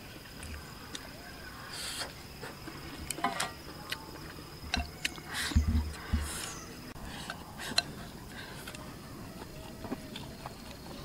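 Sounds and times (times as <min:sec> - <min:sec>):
chewing: 0:07.2 - 0:11.0.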